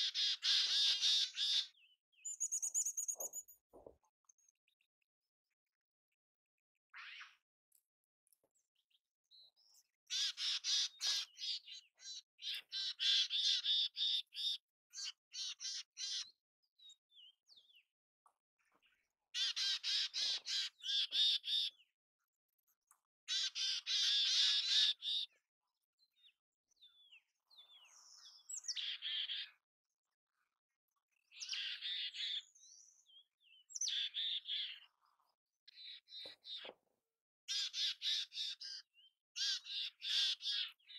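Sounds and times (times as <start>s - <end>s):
chickadee harsh buzzy calls: 0.0s - 1.7s, 10.1s - 11.6s, 23.3s - 25.2s, 37.5s - 38.7s.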